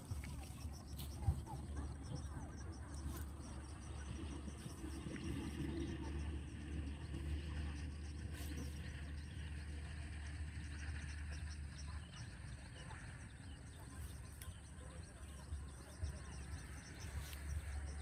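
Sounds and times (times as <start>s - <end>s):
birds chirping: 0.0s - 18.0s
steady low rumble: 0.0s - 18.0s
faint insects chirping: 12.8s - 18.0s.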